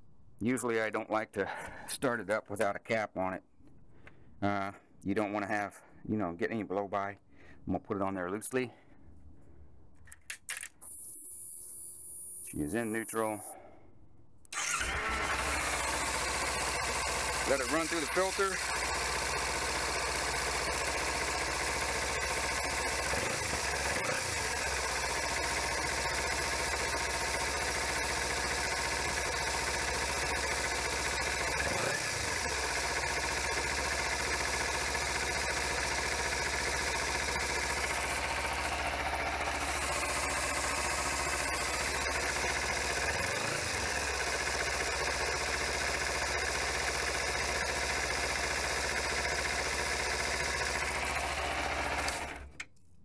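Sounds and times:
motorcycle engine idling: 14.6 - 52.4.

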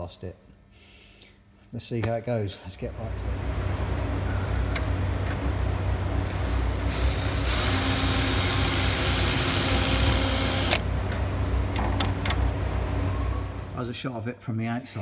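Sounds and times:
steady low hum: 0.0 - 15.0
power drill drilling rivet: 6.3 - 10.8.

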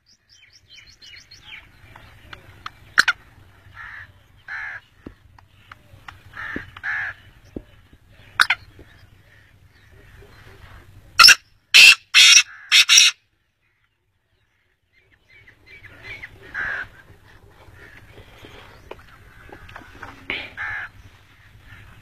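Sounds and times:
bird calling short notes: 11.2 - 13.2.

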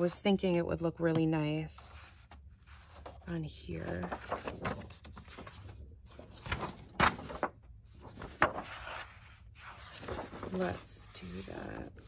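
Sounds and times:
book pages rustling: 2.0 - 12.0.

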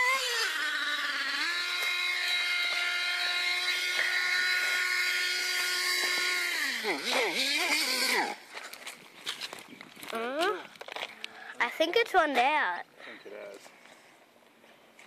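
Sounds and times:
model car engine whining: 0.0 - 8.6.

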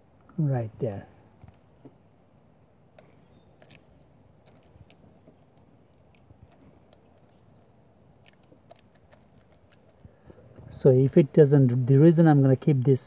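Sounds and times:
aluminium foil crinkling: 3.0 - 7.6, 8.2 - 10.0.

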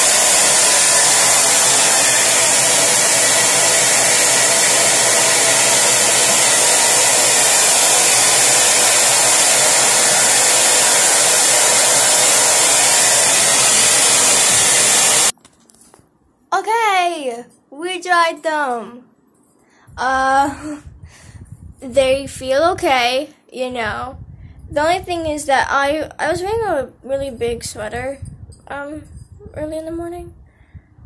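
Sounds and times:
hair dryer running: 0.0 - 15.4.

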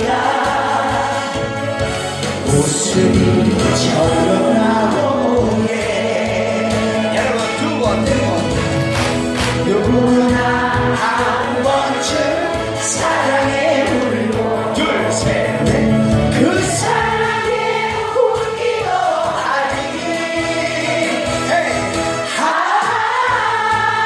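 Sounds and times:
person singing into microphone: 0.0 - 8.6
loud backing track: 0.0 - 24.0.

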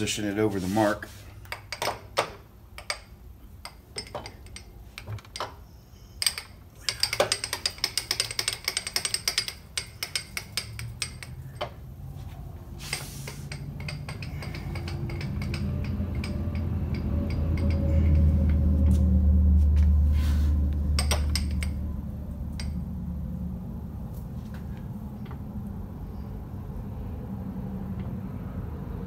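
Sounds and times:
hand crank clicking and rattling: 6.2 - 11.8, 12.9 - 18.7
low hum: 13.4 - 29.0.

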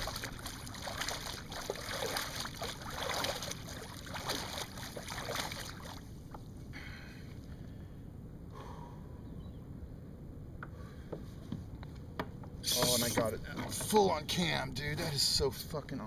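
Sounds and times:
water splashing and dripping: 0.0 - 6.1.

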